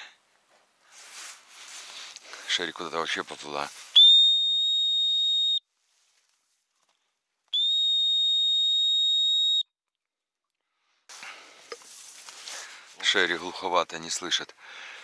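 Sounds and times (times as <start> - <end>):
dog whistle blasts: 4.0 - 5.6, 7.5 - 9.6.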